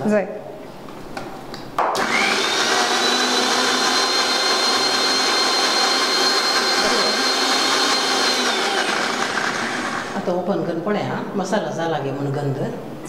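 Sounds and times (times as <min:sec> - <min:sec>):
mixer grinder whining: 0:01.9 - 0:10.3.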